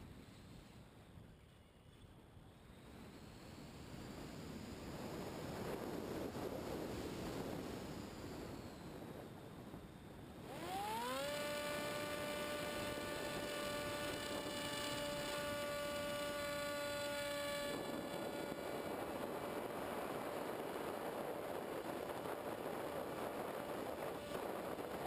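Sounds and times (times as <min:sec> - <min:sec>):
model plane motor whine: 0:00.0 - 0:25.0
wind rush: 0:04.0 - 0:25.0.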